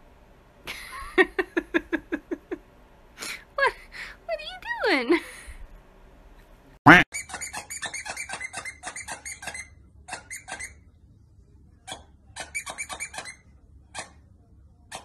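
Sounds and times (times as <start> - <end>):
dog toy squeaker squeaking: 7.1 - 10.8, 11.9 - 14.2.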